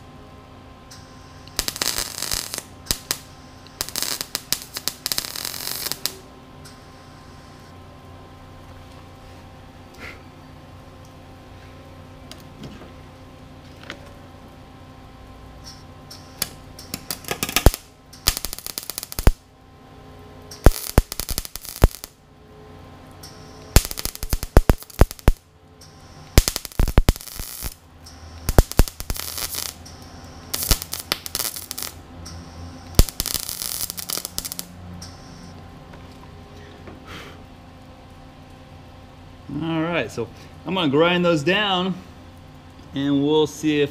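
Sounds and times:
welder crackling: 0:00.9 - 0:07.7, 0:15.6 - 0:19.5, 0:20.4 - 0:22.2, 0:23.0 - 0:35.6.

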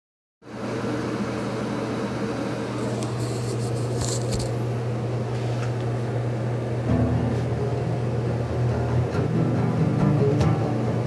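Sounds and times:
steady low hum: 0:00.5 - 0:11.0
faint clicks and rustles: 0:02.8 - 0:04.6.

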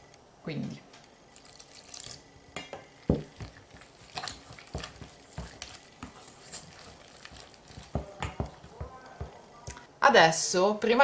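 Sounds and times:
utensil clacking against metal bowl: 0:03.3 - 0:09.4
utensil scraping dough in bowl: 0:03.3 - 0:09.4.

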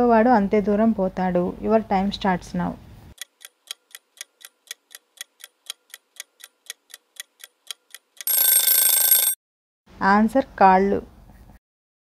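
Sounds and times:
clock ticking: 0:03.2 - 0:09.3
loud ringing bell: 0:08.3 - 0:09.4.

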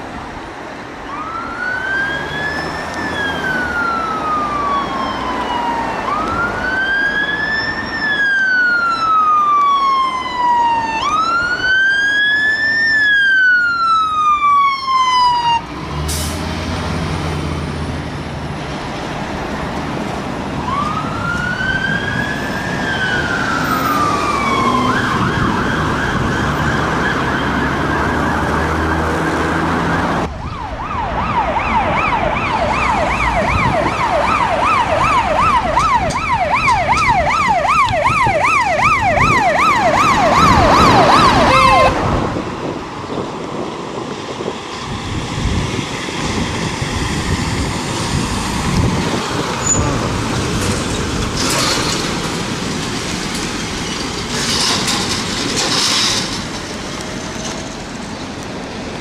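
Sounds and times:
fire engine siren wailing: 0:00.9 - 0:59.0
siren rapid yelp: 0:01.1 - 0:15.6, 0:20.6 - 0:42.1
fast sweeping siren tone: 0:20.7 - 0:42.2.

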